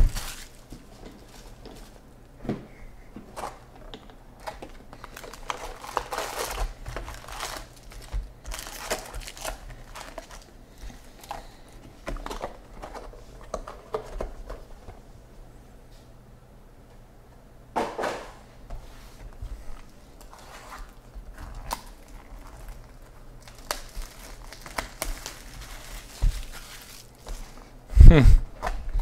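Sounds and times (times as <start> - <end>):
foil packs crinkling: 0.0 - 2.0, 4.4 - 14.3, 20.2 - 27.7.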